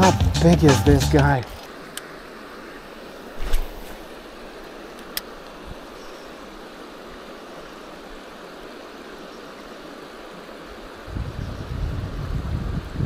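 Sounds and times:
river flowing over stones: 1.4 - 11.1.

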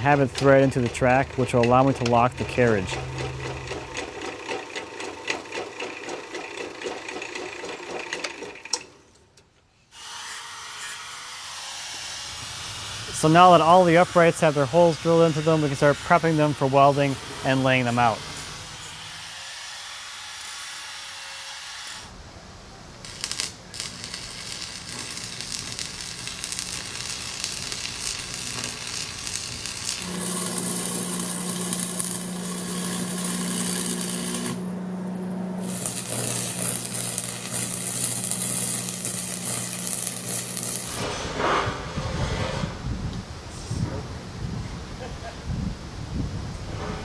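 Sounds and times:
low electrical hum: 22.1 - 41.0
welding arc crackling: 23.0 - 41.1.

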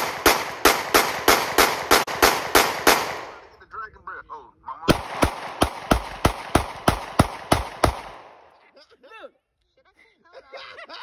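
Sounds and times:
rapid handgun shots: 0.0 - 3.4, 4.9 - 8.6.

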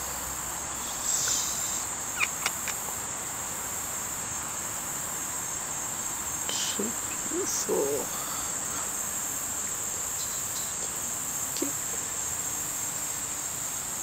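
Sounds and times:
insect chorus buzzing: 0.0 - 14.0.

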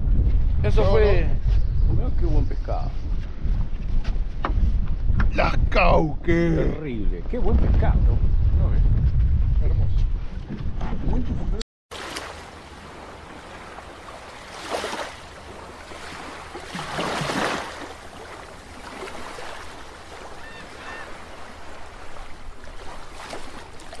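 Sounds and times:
small waves washing: 11.9 - 24.0.

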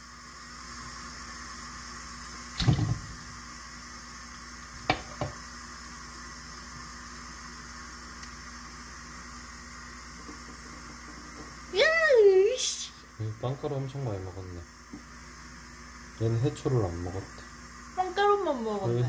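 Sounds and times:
steady hiss: 0.0 - 19.0.

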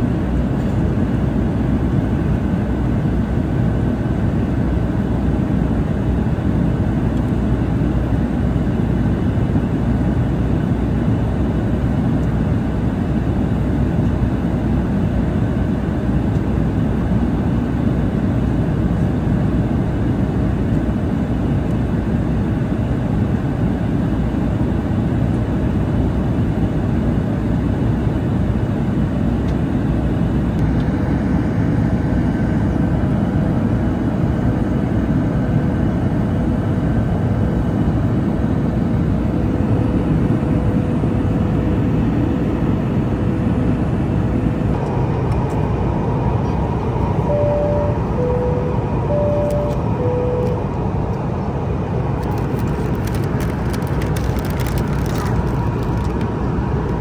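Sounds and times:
jet cabin engine rumble: 0.0 - 57.0
two-tone cabin chime: 47.2 - 50.8.

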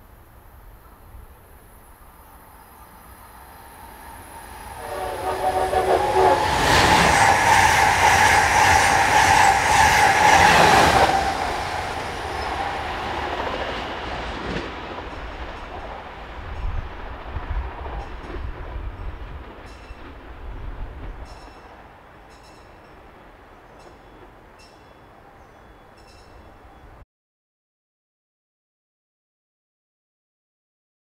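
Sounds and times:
train horn: 4.2 - 11.6.

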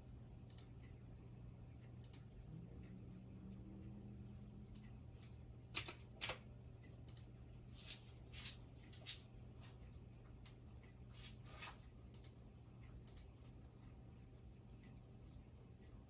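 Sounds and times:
faint low steady hum: 0.0 - 16.0
computer mouse clicking: 0.5 - 0.9, 2.0 - 2.3, 4.7 - 7.3, 12.1 - 13.4.

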